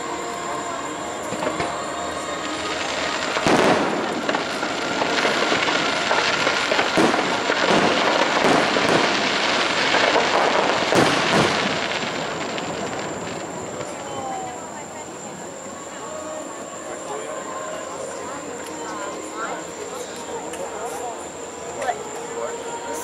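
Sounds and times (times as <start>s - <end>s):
fireworks bangs: 0.0s - 15.5s.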